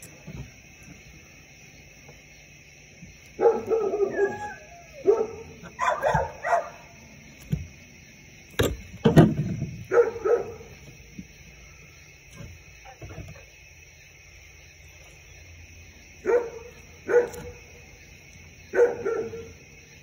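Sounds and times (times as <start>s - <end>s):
dog barking and yipping: 3.3s - 7.0s, 9.9s - 10.8s, 16.2s - 17.8s, 18.7s - 19.6s.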